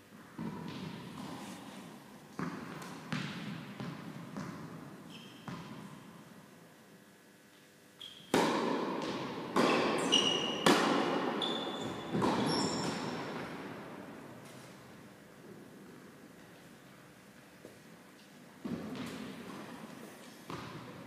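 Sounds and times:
tennis ball bouncing on court: 0:02.4 - 0:04.8, 0:05.4 - 0:05.9, 0:08.0 - 0:13.7, 0:18.6 - 0:19.6, 0:20.5 - 0:20.9
shoes squeaking on court: 0:04.4 - 0:05.8, 0:08.0 - 0:08.4, 0:09.6 - 0:13.6
tennis ball hit by racket: 0:08.3 - 0:11.4.

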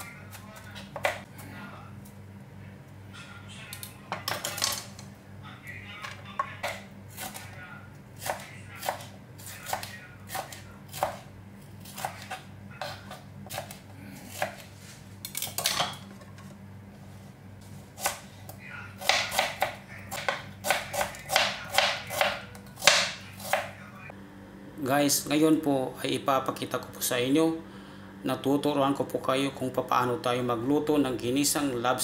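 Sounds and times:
knife chopping on plastic cutting board: 0:19.0 - 0:23.7.

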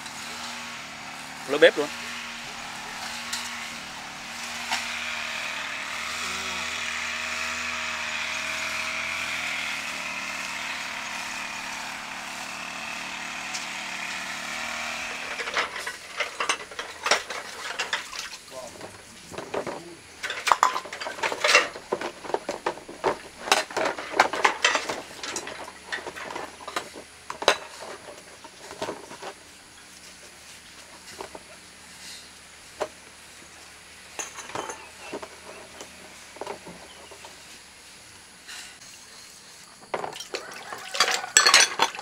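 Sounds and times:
hard objects clinking and scraping: 0:02.5 - 0:05.0, 0:18.8 - 0:29.4, 0:34.1 - 0:37.5, 0:38.6 - 0:42.0.

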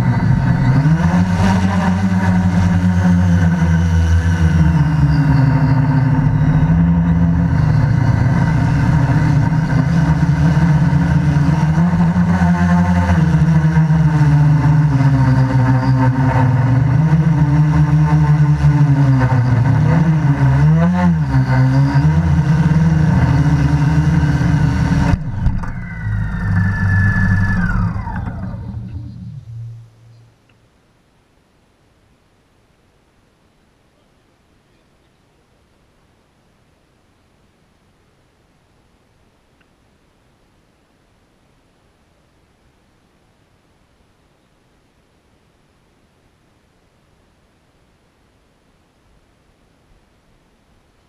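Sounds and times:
motors winding down whine: 0:00.0 - 0:30.3
quadcopter motors droning: 0:00.0 - 0:30.3.

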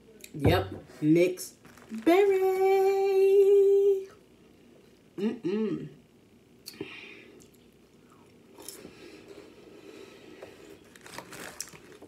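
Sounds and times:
cracker bag crinkling: 0:01.5 - 0:02.2, 0:10.6 - 0:12.0
plastic container crinkling: 0:10.8 - 0:12.0.

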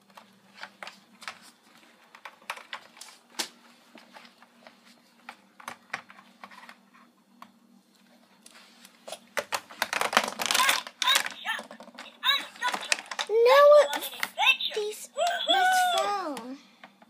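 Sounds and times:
faint steady hum: 0:00.0 - 0:17.0
plastic toy pieces clicking: 0:09.8 - 0:13.3.

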